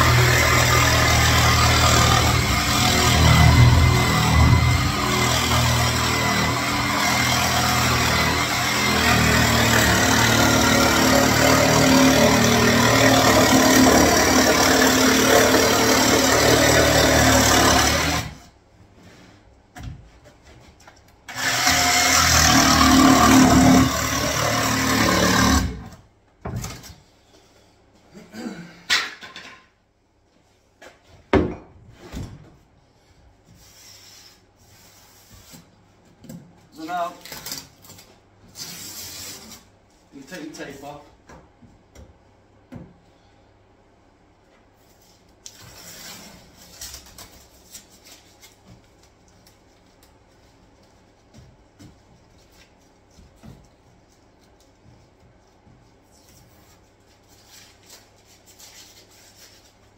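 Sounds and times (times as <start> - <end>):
jigsaw cutting worktop: 0.0 - 18.4, 21.3 - 25.9.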